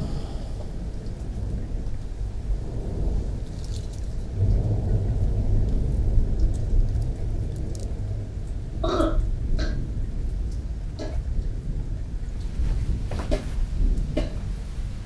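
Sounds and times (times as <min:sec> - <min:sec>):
faint crackles: 0:00.0 - 0:08.6
low steady rumble: 0:00.0 - 0:15.0.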